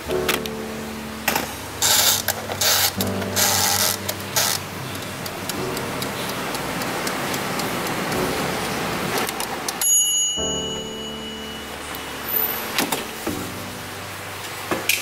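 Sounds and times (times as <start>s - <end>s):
air fryer fan running: 0.0s - 10.4s
dials clicking: 1.3s - 10.0s.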